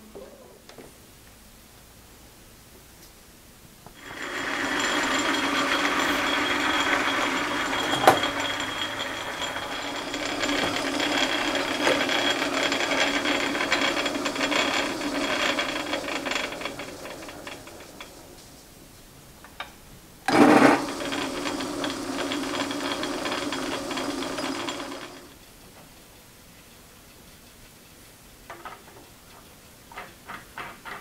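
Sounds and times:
metal lathe running: 4.0 - 18.4, 20.3 - 25.4.

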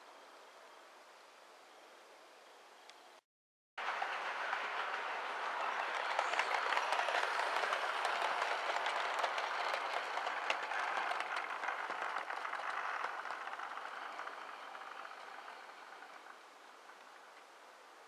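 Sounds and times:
model train rattling whirr: 3.8 - 17.4.

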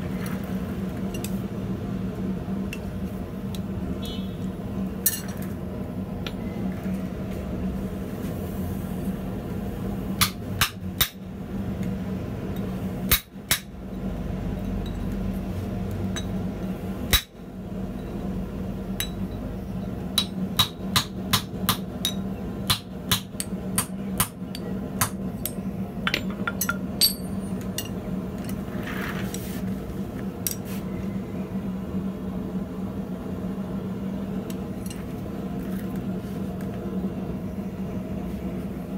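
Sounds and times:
hammer striking steel: 20.2 - 28.0.

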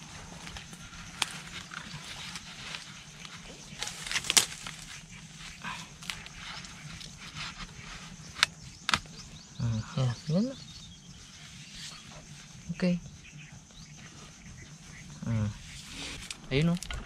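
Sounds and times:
rustling of dry leaves and twigs: 0.0 - 9.5.

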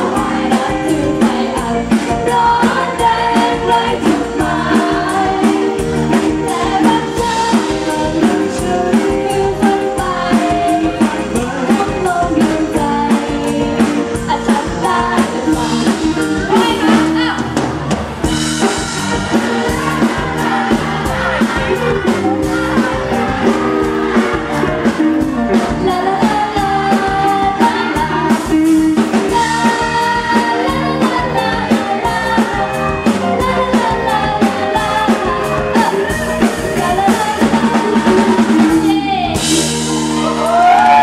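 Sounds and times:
woman singing into microphone: 0.0 - 17.5, 25.4 - 39.6
band with drums and electric guitar: 0.0 - 41.0.

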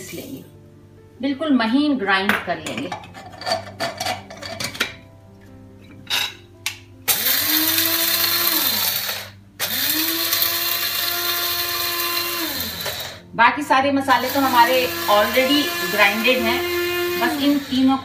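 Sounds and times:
electric spice grinder whining: 7.1 - 13.3, 14.1 - 18.0.

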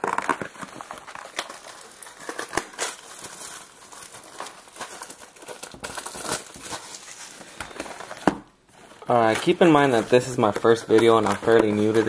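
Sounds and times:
card pack wrapper crinkling: 0.0 - 12.0.

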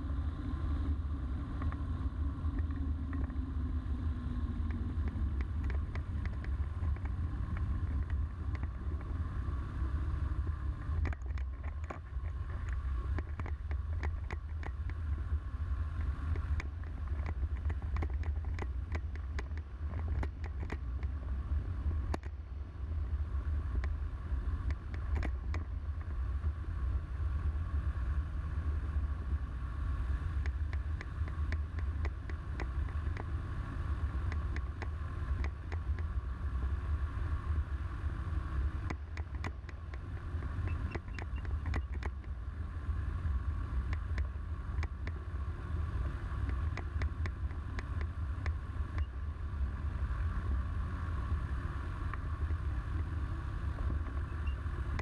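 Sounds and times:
light aircraft engine running: 0.0 - 55.0
wind rumble on microphone: 0.0 - 55.0
sharp clicks and knocks: 4.7 - 9.1, 10.8 - 15.0, 16.0 - 21.2, 22.1 - 22.4, 24.6 - 26.1, 30.4 - 33.3, 34.3 - 36.1, 38.8 - 42.4, 46.4 - 49.1.

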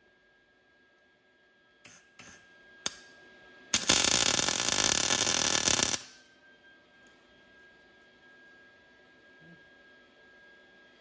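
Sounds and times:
welding arc crackling: 3.7 - 6.2.

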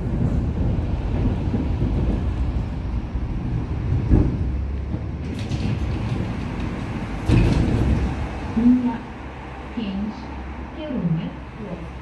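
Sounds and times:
tram wheels rumbling on rails: 0.0 - 12.0
thud: 4.0 - 8.3.

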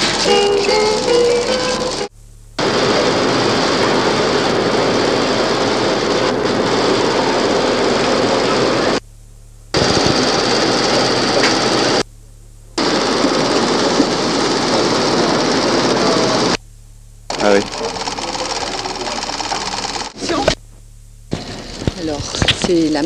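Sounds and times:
loud mechanical noise: 0.0 - 23.0
faint low hum: 6.2 - 12.8, 16.0 - 23.0.

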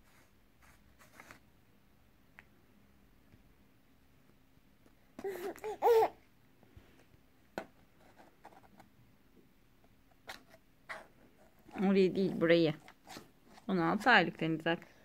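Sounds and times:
toddler babbling: 5.2 - 6.2.

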